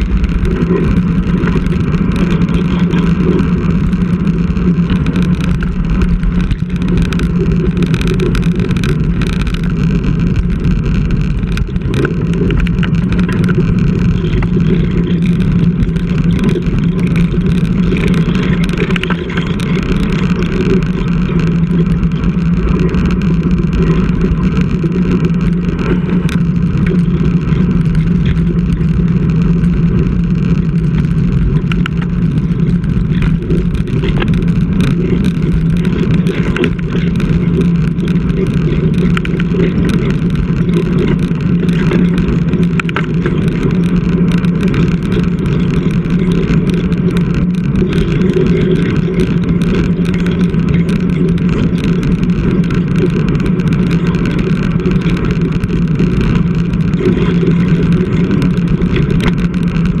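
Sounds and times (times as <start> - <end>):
small clicks: 0.0 - 60.0
tyre on road noise: 0.0 - 60.0.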